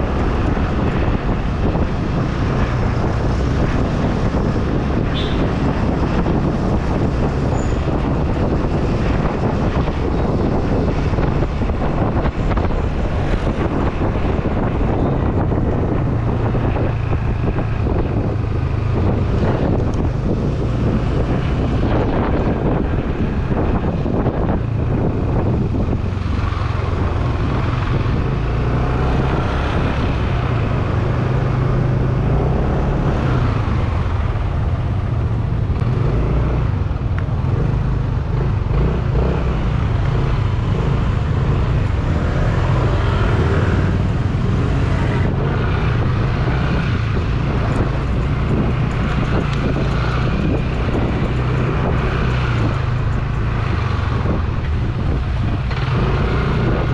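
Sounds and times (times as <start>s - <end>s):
motorcycle engine drone: 0.0s - 56.9s
wind rushing over microphone: 0.0s - 56.9s.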